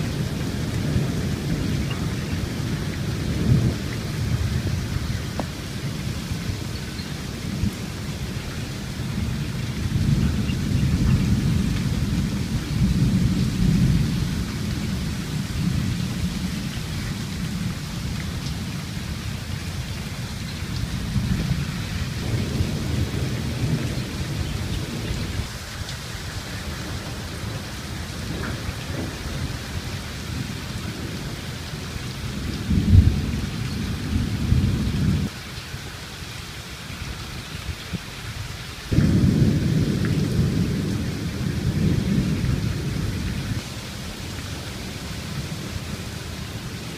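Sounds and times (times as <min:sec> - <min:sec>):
thunder rolling: 0:00.0 - 0:08.3, 0:20.8 - 0:31.3, 0:38.9 - 0:43.7
steady rain: 0:00.0 - 0:46.9.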